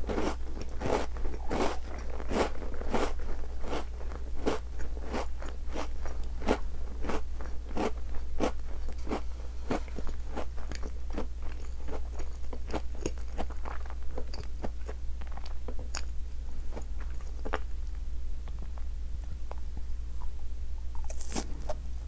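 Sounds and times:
biscuit crunching: 0.0s - 19.6s, 20.9s - 21.8s
low steady hum: 0.0s - 22.0s.

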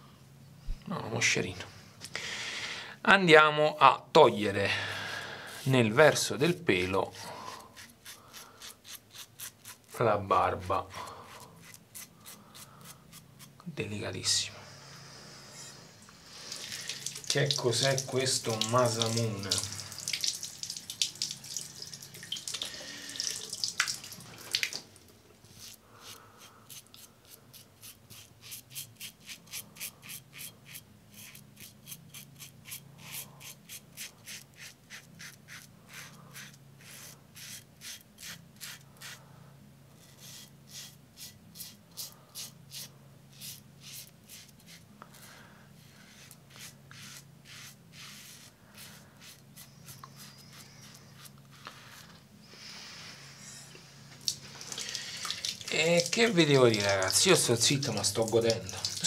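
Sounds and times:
razor scraping beard stubble: 7.5s - 10.0s, 10.7s - 13.6s, 16.8s - 19.8s, 25.5s - 39.2s, 40.0s - 52.2s.

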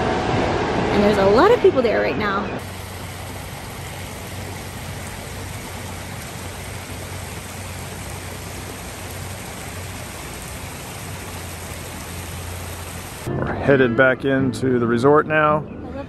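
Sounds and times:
low steady hum: 0.0s - 13.3s
water rushing over rocks: 2.6s - 13.3s.

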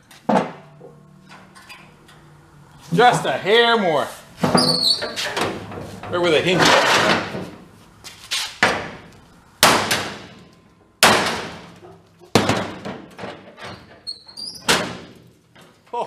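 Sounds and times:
sledgehammer striking steel: 9.6s - 10.4s, 11.0s - 13.1s.

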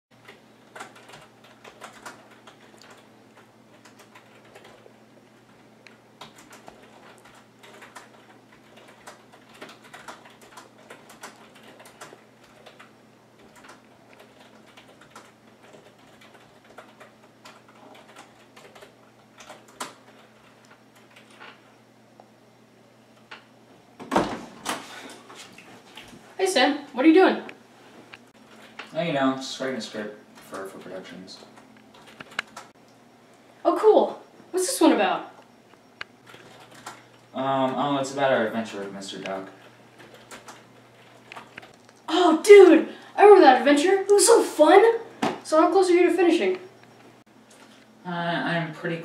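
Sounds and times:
keyboard typing clicks: 0.2s - 4.9s, 5.9s - 21.6s, 31.6s - 32.8s, 35.7s - 37.8s, 40.0s - 42.1s
low steady hum: 0.2s - 49.0s.

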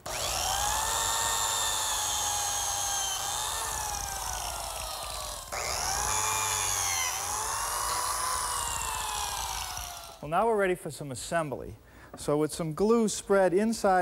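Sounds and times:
biscuit joiner motor whining: 0.0s - 10.2s.

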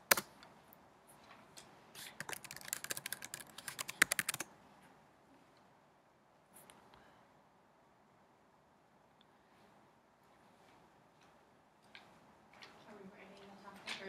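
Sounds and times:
rapid typing on laptop keyboard: 2.1s - 4.5s.

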